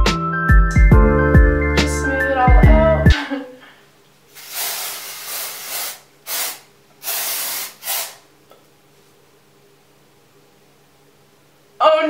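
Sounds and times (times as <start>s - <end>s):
aerosol can spraying: 4.4s - 8.3s.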